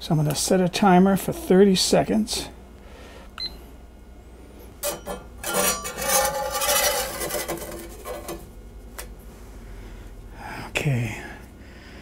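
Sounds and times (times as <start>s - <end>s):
spatula scraping skillet: 4.8s - 8.4s.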